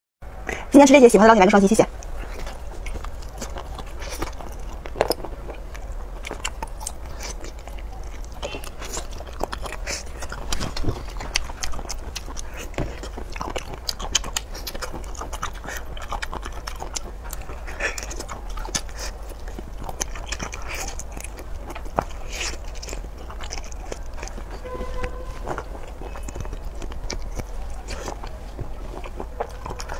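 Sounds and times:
biting and chewing: 1.4 - 29.9
low hum: 22.8 - 29.9.

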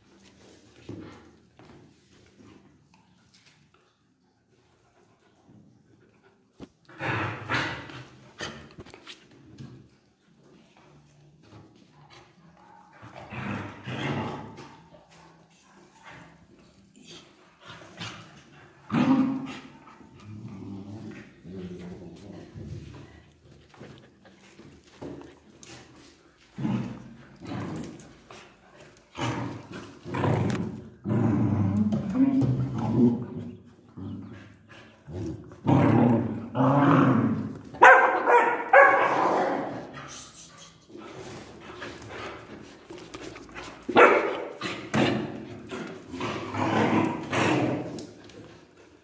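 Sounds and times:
dog growling: 29.1 - 37.6
dog barking: 37.8 - 39.2, 44.0 - 44.5.

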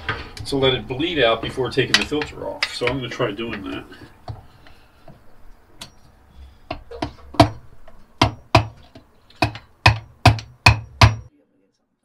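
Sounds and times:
hammer knocking on metal: 6.7 - 11.3.

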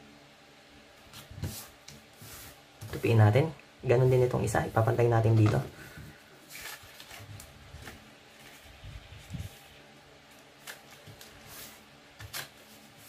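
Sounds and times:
paper swishes: 1.1 - 3.2, 6.4 - 13.0
paper rustling: 6.4 - 13.0.

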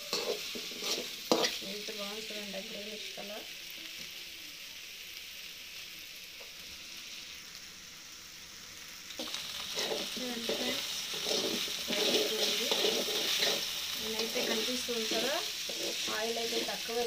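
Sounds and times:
spatula stirring: 0.0 - 1.6, 9.2 - 17.0
okra sizzling in oil: 0.0 - 17.0.

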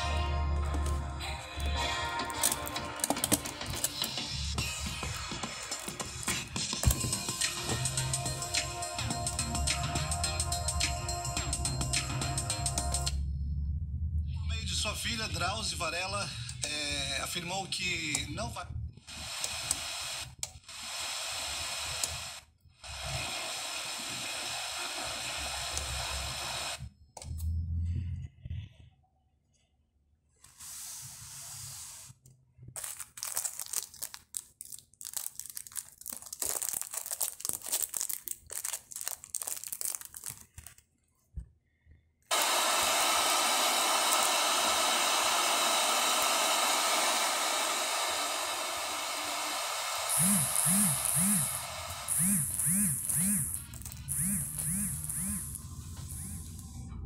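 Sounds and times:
radio static hiss: 19.1 - 26.8.

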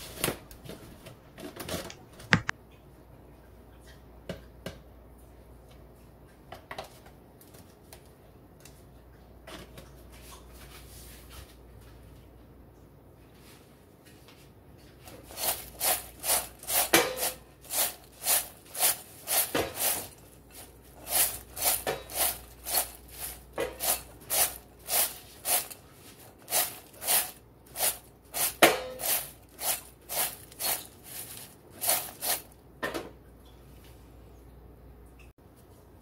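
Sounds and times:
chickpeas rattling in glass bowl: 15.3 - 20.2, 21.0 - 25.8, 26.4 - 32.5.

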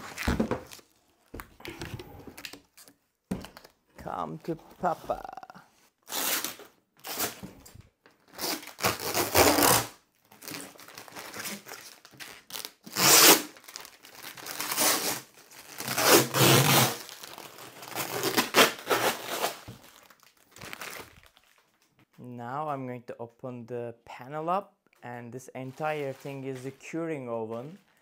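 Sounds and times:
plastic bag crinkling: 13.5 - 14.7, 19.7 - 22.1.

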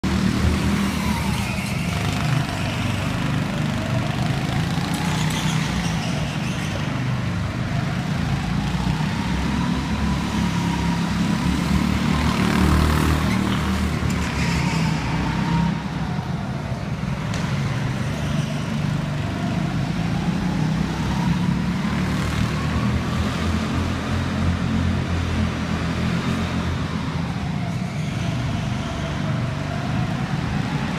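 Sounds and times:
go-kart motor whine: 0.6 - 6.8.

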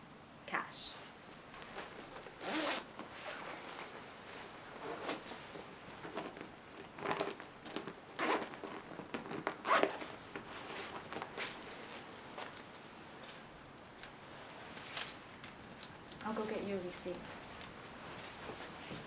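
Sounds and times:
nylon jacket rustling: 1.6 - 13.5.

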